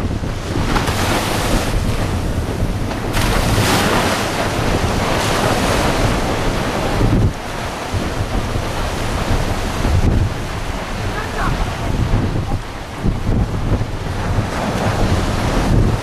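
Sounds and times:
surf breaking and washing: 0:00.0 - 0:16.0
wind buffeting microphone: 0:00.0 - 0:16.0.

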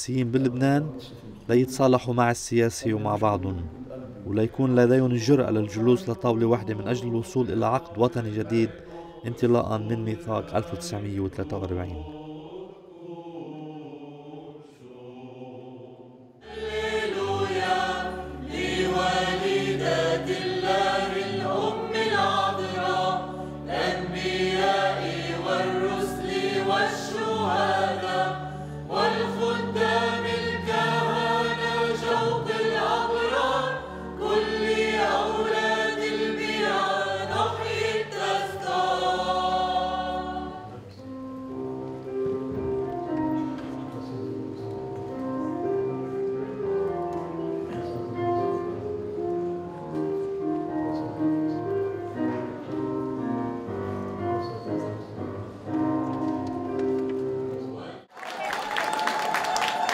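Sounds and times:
church choir singing a hymn: 0:04.2 - 0:44.8.

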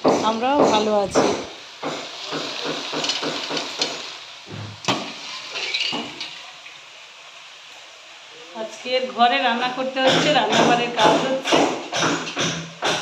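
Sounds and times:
knock on pan: 0:00.0 - 0:05.2, 0:05.9 - 0:06.2, 0:10.0 - 0:13.0
chickpeas rattling in steel pan: 0:01.7 - 0:04.3.

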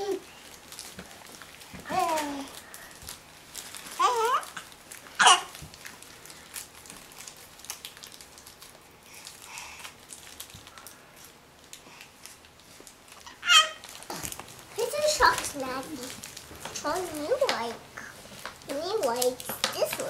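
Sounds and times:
child squealing: 0:13.3 - 0:13.8.

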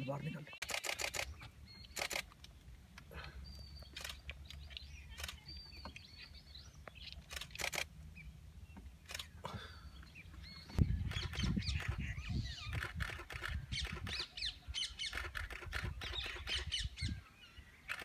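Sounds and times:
camera shutters clicking: 0:00.6 - 0:02.4, 0:04.0 - 0:05.4, 0:07.2 - 0:07.9, 0:09.1 - 0:09.3, 0:12.7 - 0:14.2, 0:15.1 - 0:16.6
faint bird calls: 0:08.7 - 0:18.0.

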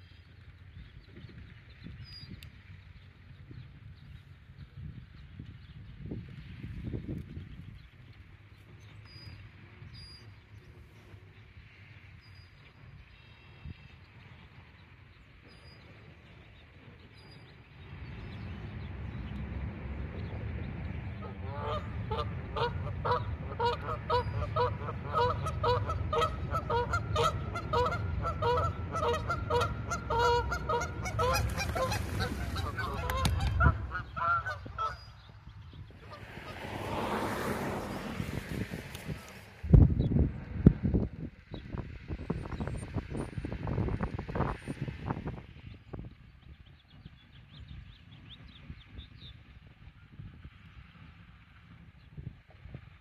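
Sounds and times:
wind rumbling on microphone: 0:00.0 - 0:53.0
birds splashing onto water: 0:17.9 - 0:39.6
geese honking: 0:21.2 - 0:38.2.

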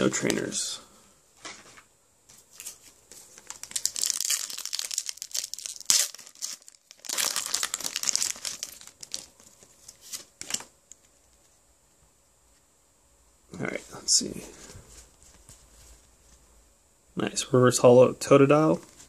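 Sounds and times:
foil wrapper crinkling: 0:02.6 - 0:11.0
foil wrapper snapping: 0:03.4 - 0:09.6.

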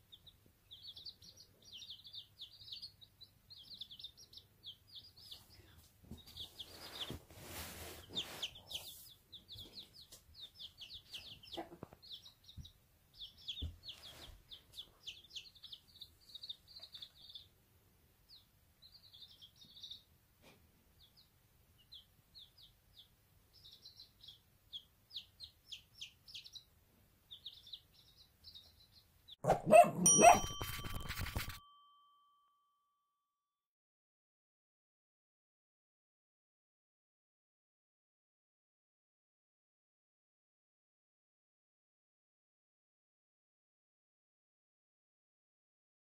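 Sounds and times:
chicks peeping: 0:00.0 - 0:31.6.

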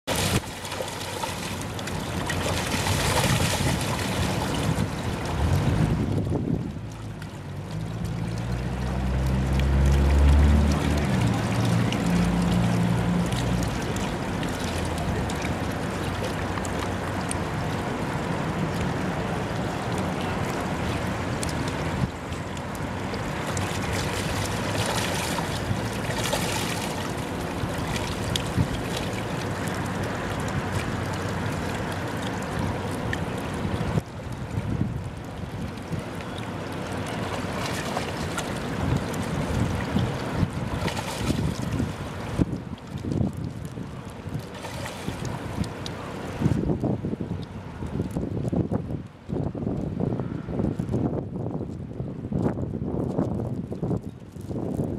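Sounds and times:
creek water running and splashing: 0:00.0 - 0:51.5
fish thrashing in water: 0:00.1 - 0:05.9, 0:07.8 - 0:17.5, 0:22.6 - 0:33.7, 0:35.7 - 0:46.4
low engine drone: 0:04.9 - 0:34.0.

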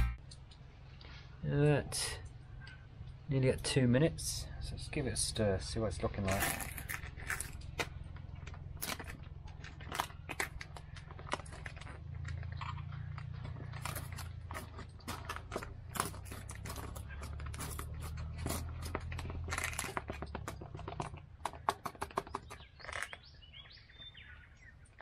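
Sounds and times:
foil pouch crinkling: 0:06.2 - 0:23.2.

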